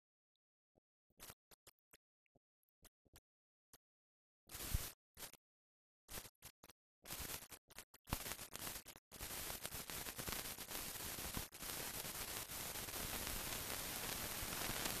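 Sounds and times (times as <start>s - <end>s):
film soundtrack hiss and crackles: 6.1s - 15.0s.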